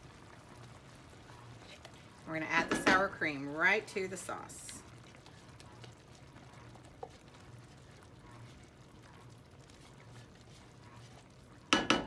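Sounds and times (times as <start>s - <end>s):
faint low hum: 3.5s - 11.7s.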